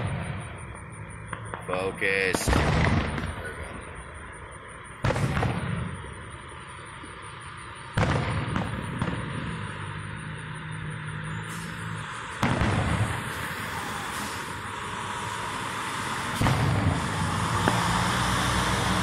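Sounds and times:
fireworks booming: 0.0 - 18.9
fireworks cracks and rumble: 0.0 - 19.0
car driving past: 9.1 - 19.0.

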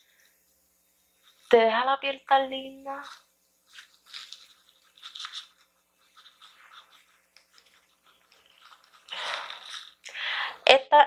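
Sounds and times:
sponge patting on skin: 2.8 - 9.7.

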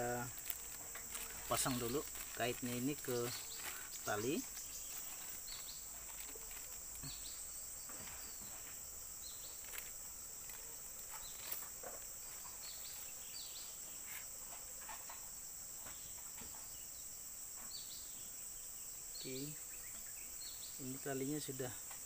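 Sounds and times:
insects droning: 0.0 - 22.0
plastic packet crinkling: 0.2 - 7.1, 9.6 - 10.7.

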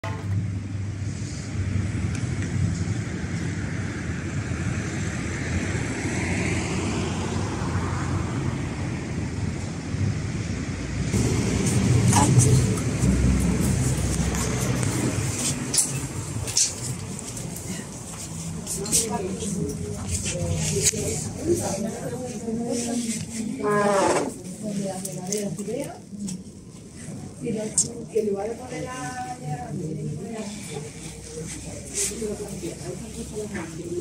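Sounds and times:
car engine and tyre noise: 0.0 - 18.8
vehicle passing: 0.3 - 24.4.

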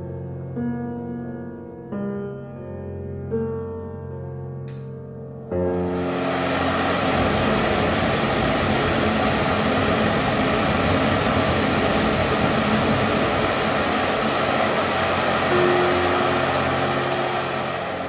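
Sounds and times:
gas stove burner hissing: 5.7 - 18.0.

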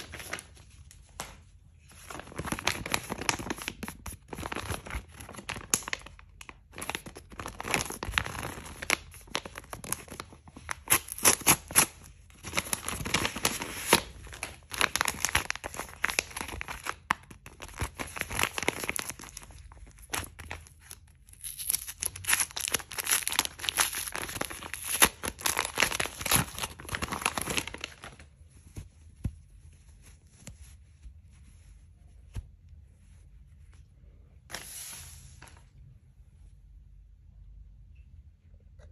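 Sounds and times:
paper crinkling: 0.0 - 33.9
envelope torn open: 1.9 - 28.2.

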